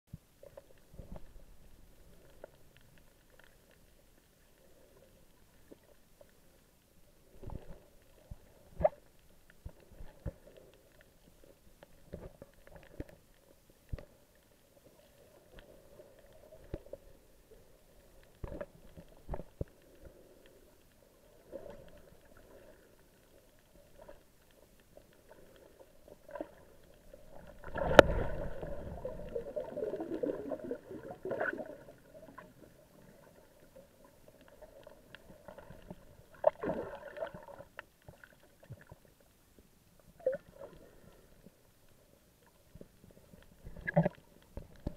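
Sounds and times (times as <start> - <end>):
rush of water and bubbling: 25.1 - 39.1, 43.5 - 44.9.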